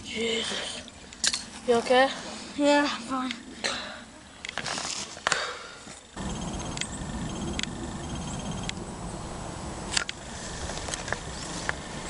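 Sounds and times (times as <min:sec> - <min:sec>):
low rumbling noise: 0:06.1 - 0:12.0
faint high chirping trills: 0:06.2 - 0:09.3.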